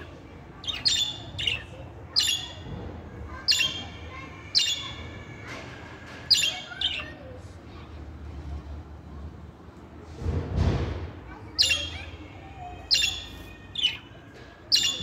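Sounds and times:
budgerigars chirping: 0.6s - 1.6s, 14.7s - 15.0s.

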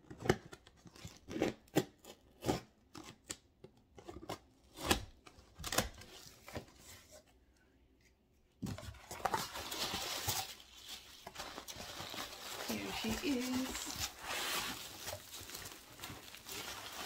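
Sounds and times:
rustling scrape of cardboard flap: 13.7s - 16.9s.

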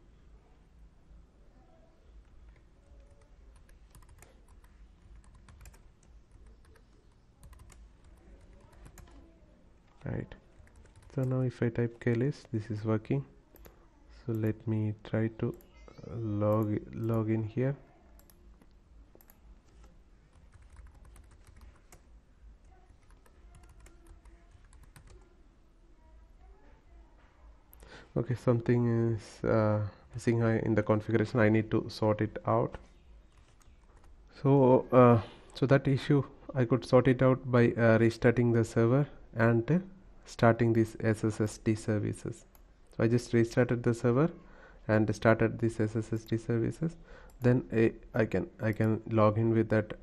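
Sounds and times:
computer keyboard typing: 2.2s - 11.4s, 18.1s - 25.3s, 33.3s - 34.2s.

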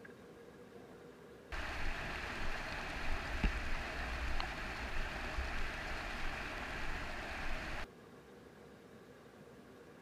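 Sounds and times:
water noise: 1.5s - 7.9s.

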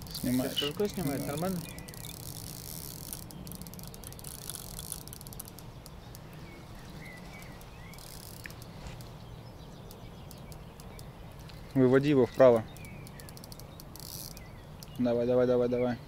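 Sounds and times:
fishing reel clicking: 0.0s - 6.3s, 7.4s - 8.7s, 12.4s - 15.0s.

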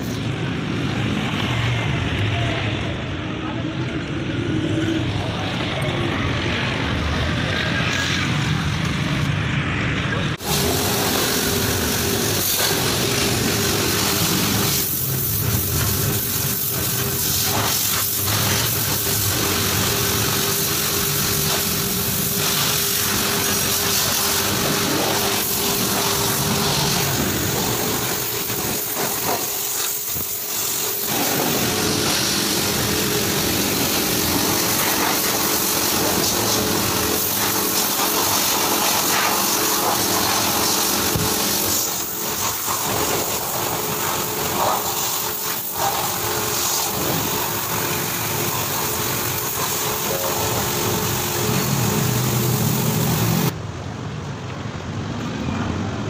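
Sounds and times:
high-pressure water jet spraying: 10.4s - 53.6s
pressure washer pump hum: 10.4s - 53.6s.

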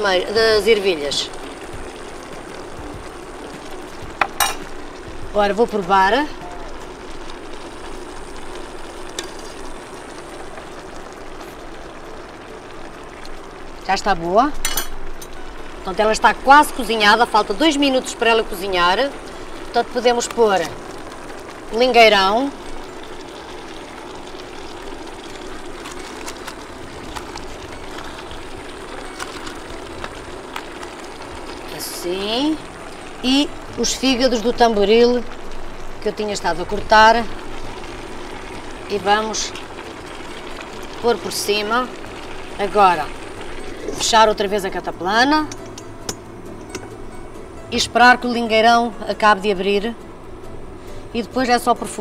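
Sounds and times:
faint steady hum: 0.0s - 52.0s
stew simmering hiss: 0.0s - 52.0s.

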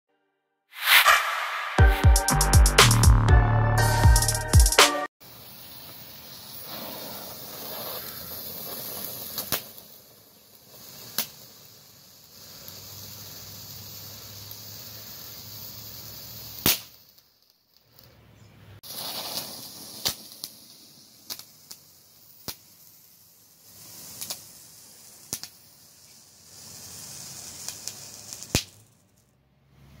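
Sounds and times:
fireworks hissing: 0.8s - 3.1s, 3.8s - 18.2s, 18.8s - 30.0s
fireworks popping and cracking: 5.2s - 18.2s, 18.8s - 29.3s.

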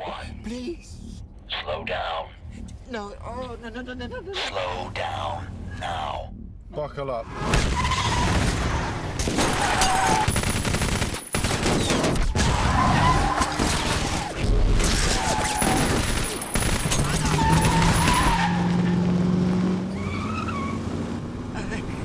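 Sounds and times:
rapid gunfire: 10.0s - 12.3s, 15.6s - 17.9s
tyres squealing: 17.0s - 18.9s.

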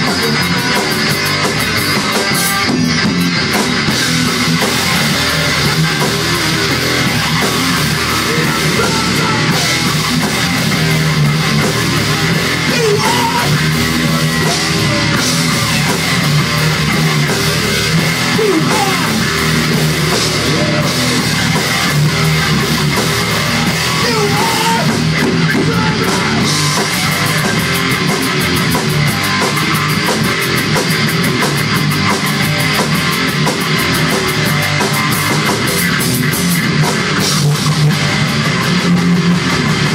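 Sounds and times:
bass guitar: 0.0s - 39.9s
distorted electric guitars: 0.0s - 39.9s
drum kit: 0.0s - 39.9s.

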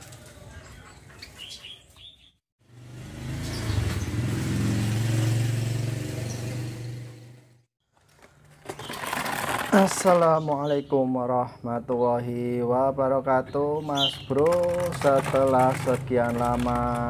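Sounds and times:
songbird chirping: 10.0s - 14.7s.

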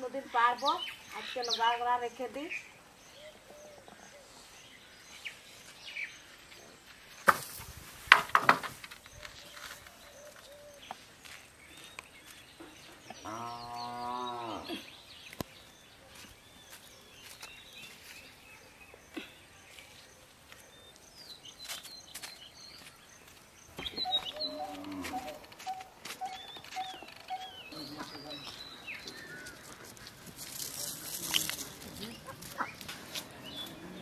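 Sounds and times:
birds chirping: 0.0s - 7.4s, 8.2s - 34.0s.

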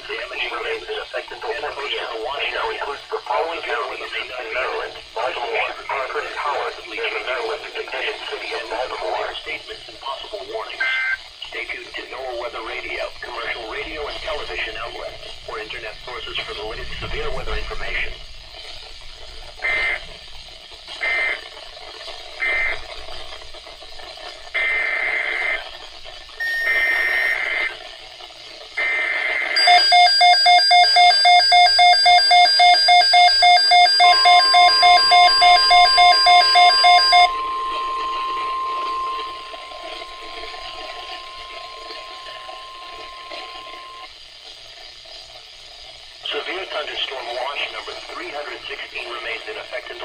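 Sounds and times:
warbling data bursts: 0.0s - 28.2s, 28.8s - 44.1s
steady warning alarm tone: 19.5s - 28.0s, 28.8s - 44.2s
data bursts: 19.6s - 20.3s, 21.0s - 23.4s, 24.1s - 25.8s, 26.4s - 28.0s, 28.8s - 44.1s
pulsing electronic alert beep: 26.4s - 27.7s, 29.6s - 44.1s.

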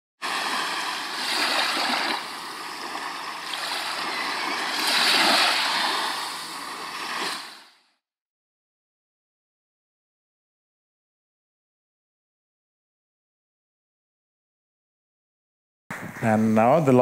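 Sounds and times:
waves breaking: 0.2s - 7.9s.

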